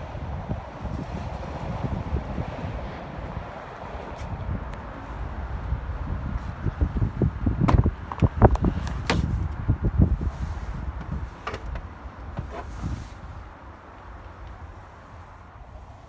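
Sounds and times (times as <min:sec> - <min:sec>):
low rumbling handling noise: 0:00.0 - 0:16.0
clunks and knocks of climbing: 0:07.6 - 0:09.7
truck door opening: 0:07.6 - 0:09.7, 0:10.7 - 0:13.2.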